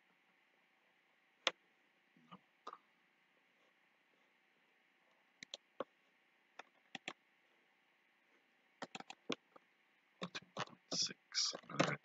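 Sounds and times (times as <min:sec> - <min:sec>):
computer mouse clicking: 0:05.4 - 0:05.9, 0:06.6 - 0:07.2, 0:08.8 - 0:09.6.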